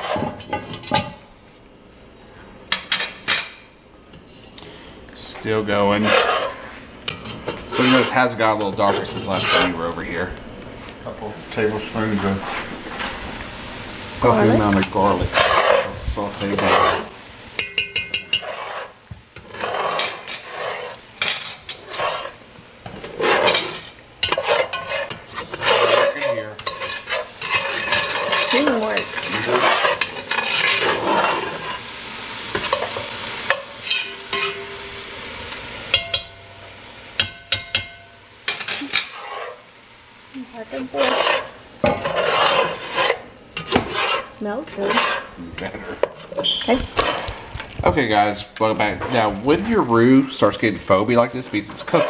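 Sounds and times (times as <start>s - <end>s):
vegetables sizzling: 0.0s - 52.0s
metal spoon scraping pot: 5.9s - 9.9s, 15.3s - 22.4s, 23.0s - 31.8s, 38.5s - 39.6s, 40.7s - 47.4s, 51.1s - 52.0s.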